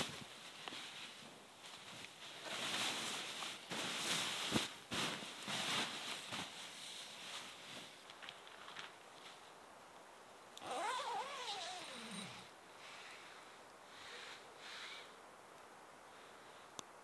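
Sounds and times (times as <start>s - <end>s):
bedding rustling: 0.0s - 9.6s, 10.6s - 13.3s.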